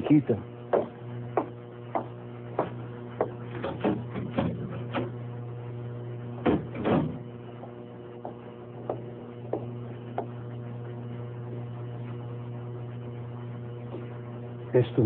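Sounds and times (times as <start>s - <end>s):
steady low hum: 0.0s - 15.0s
loud wooden knocks: 0.7s - 5.2s, 6.4s - 10.4s.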